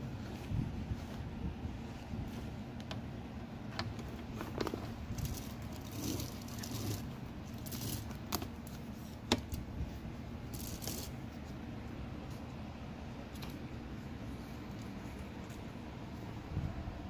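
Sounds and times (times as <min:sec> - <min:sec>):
metal parts rattling: 0:04.4 - 0:08.4, 0:10.5 - 0:11.2.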